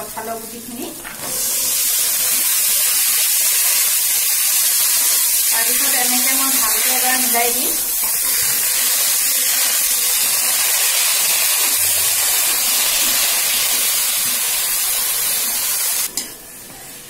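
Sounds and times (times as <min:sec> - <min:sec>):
food sizzling in hot oil: 0:00.0 - 0:16.2
spatula stirring: 0:02.0 - 0:07.1.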